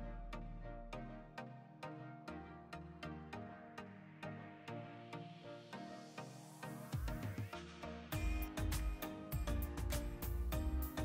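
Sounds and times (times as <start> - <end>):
electronic music plucked notes: 5.6 - 11.0
deep bass beat: 8.2 - 11.0.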